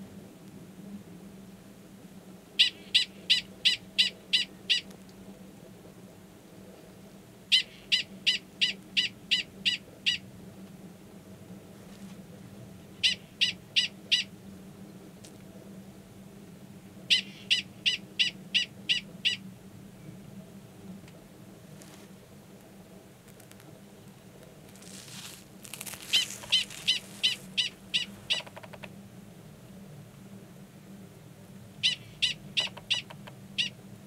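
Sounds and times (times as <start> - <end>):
prairie dog chirp-barks: 2.6 - 4.8, 13.0 - 14.3, 26.1 - 28.6, 31.8 - 33.8.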